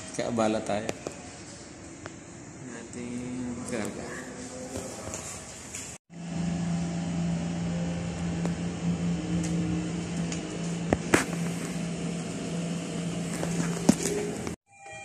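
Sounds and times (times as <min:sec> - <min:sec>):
steady low machine hum: 0:06.1 - 0:14.6.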